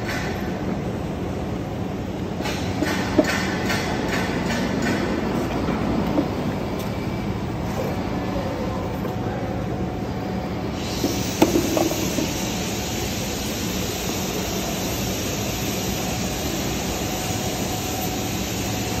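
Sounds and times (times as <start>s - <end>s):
industrial machinery drone: 0.0s - 19.0s
high hiss: 10.6s - 19.0s.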